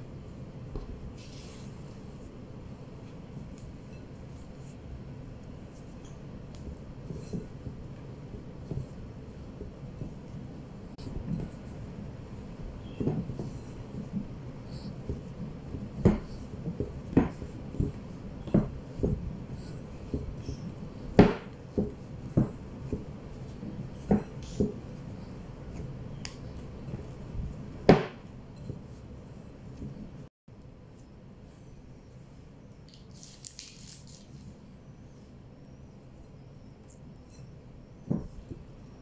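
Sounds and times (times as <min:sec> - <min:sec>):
dough kneading thumps: 0:00.6 - 0:30.3, 0:38.0 - 0:39.0.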